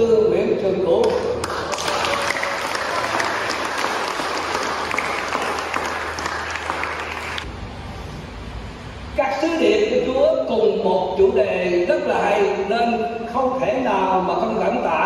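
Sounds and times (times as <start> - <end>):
audience applauding: 1.4 - 7.5.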